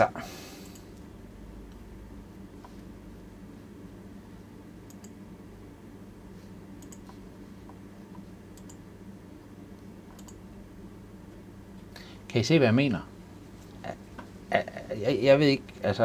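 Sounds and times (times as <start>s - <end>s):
low steady hum: 0.0s - 16.0s
computer mouse clicking: 4.9s - 5.2s, 6.8s - 8.8s, 10.1s - 10.4s.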